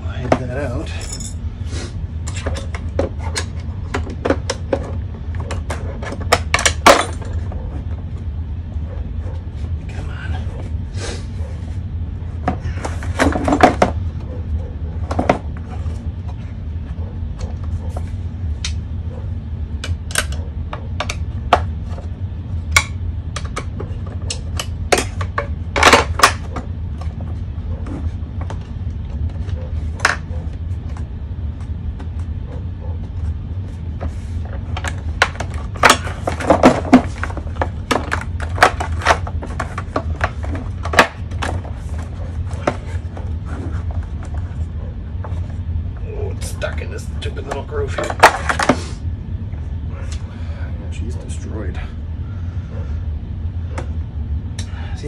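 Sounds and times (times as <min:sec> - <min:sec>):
steady low hum: 0:00.0 - 0:55.0
tools and metal parts clattering: 0:00.2 - 0:01.5, 0:02.2 - 0:07.9, 0:12.4 - 0:14.4, 0:34.1 - 0:45.5, 0:47.5 - 0:48.8.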